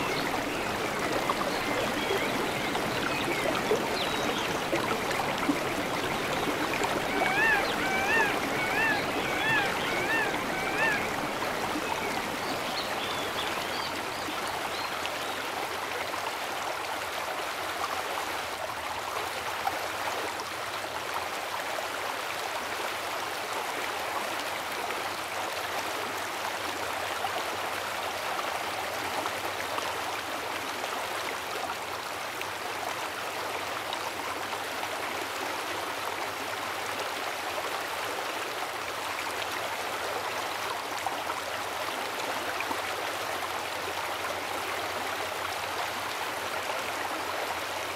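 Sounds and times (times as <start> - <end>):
river water flowing: 0.0 - 47.9.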